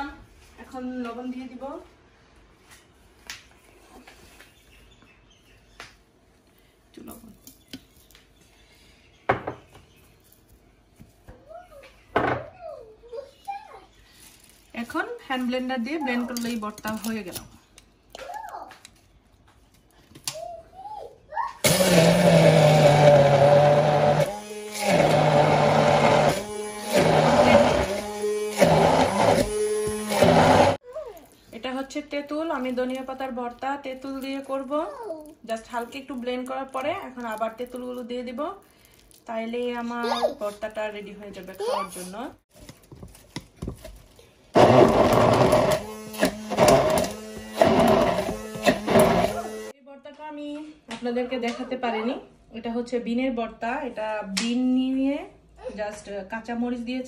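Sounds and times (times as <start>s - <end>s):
immersion blender whirring: 21.6s - 30.8s, 44.5s - 49.7s.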